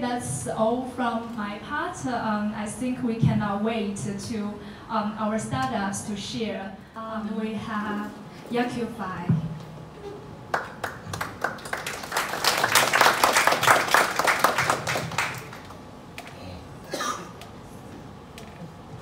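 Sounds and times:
audience applauding: 10.5s - 15.8s.

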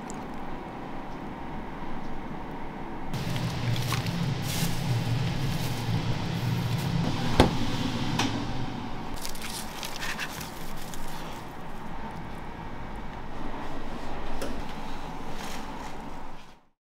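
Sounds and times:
low hum: 0.0s - 15.0s
tongs rustling and scraping: 3.2s - 5.9s, 9.2s - 11.8s.

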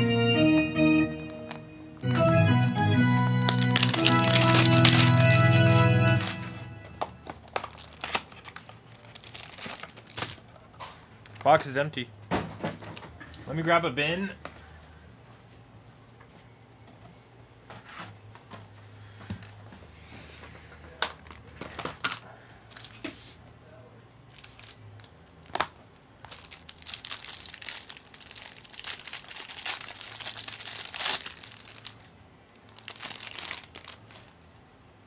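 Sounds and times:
card pack wrapper tearing and crinkling: 3.4s - 6.6s, 7.2s - 10.5s, 24.3s - 34.4s.

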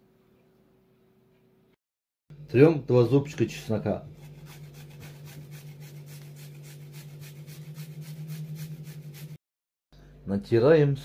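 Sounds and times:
garlic scraping on metal grater: 4.1s - 9.3s.

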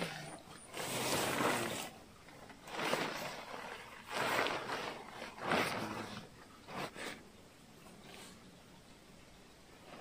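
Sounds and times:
nylon tent fly rustling: 0.0s - 7.2s.

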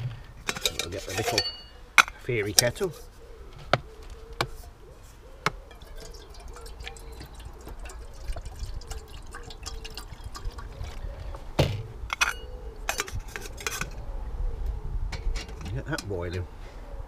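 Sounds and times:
water pouring into kettle: 5.7s - 11.1s.

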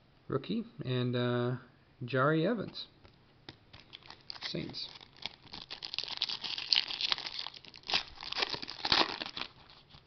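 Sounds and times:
foil wrapper crinkling and tearing: 3.7s - 10.0s.

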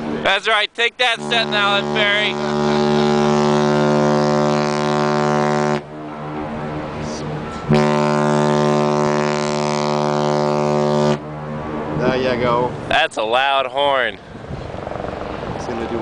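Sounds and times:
ship horn blasts: 1.0s - 12.7s.

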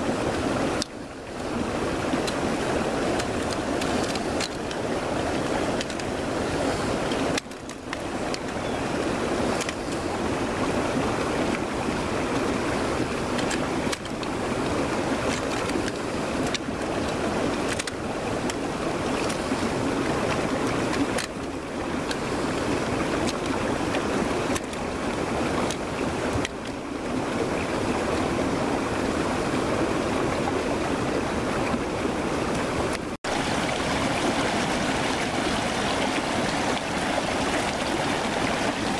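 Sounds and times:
steady rushing noise: 32.2s - 38.9s.

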